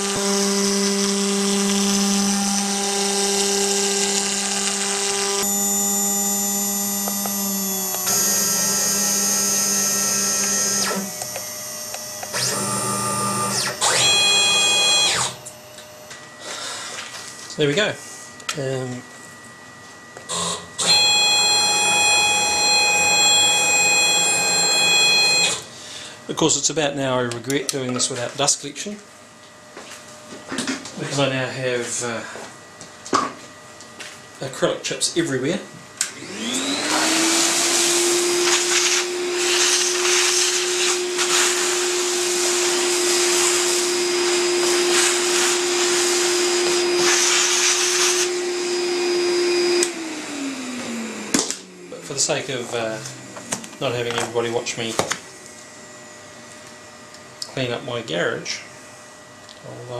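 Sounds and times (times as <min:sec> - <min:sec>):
high-pitched motor whine: 0:00.0 - 0:25.8, 0:35.1 - 0:59.9
vacuum cleaner running: 0:00.0 - 0:26.4, 0:34.0 - 0:59.9.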